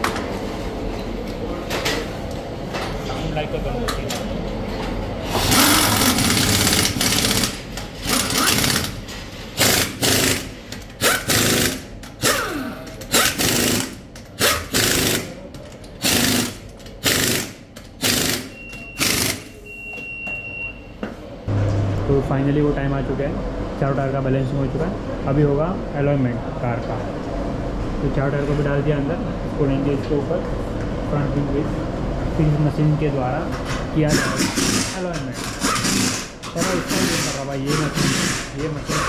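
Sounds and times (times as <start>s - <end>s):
pneumatic impact wrench bursts: 5.3s - 9.0s, 9.6s - 15.4s, 16.0s - 19.6s, 34.1s - 39.0s.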